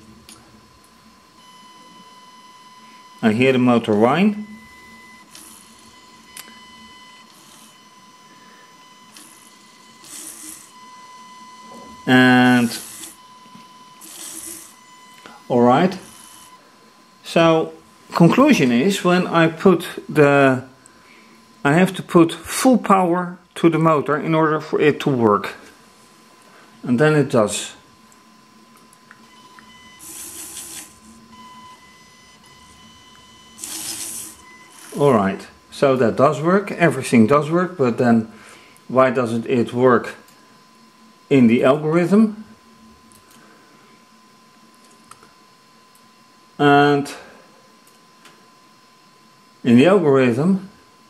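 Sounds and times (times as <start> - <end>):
faint high whine: 0.0 - 51.0
small motor whining: 4.7 - 15.0, 29.4 - 35.0
small electric motor whirring: 7.3 - 7.8, 9.1 - 10.8, 12.6 - 13.3, 13.9 - 14.8, 29.4 - 31.2, 33.5 - 35.1.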